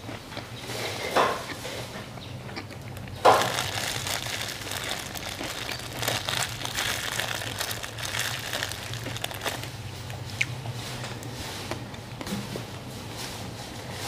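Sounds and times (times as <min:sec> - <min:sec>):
plastic bag crinkling: 0:03.0 - 0:10.3.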